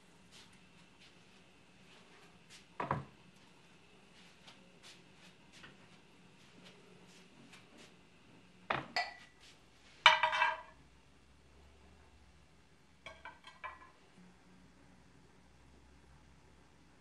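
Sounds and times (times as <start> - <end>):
cooking pots and lids clinking: 8.7 - 9.3, 10.1 - 10.8, 13.1 - 14.0.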